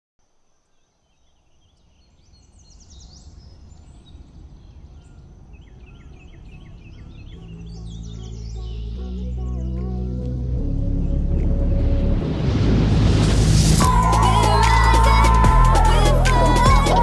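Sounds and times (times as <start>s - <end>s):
birds chirping: 0.6s - 11.6s
low rumble: 3.4s - 17.0s.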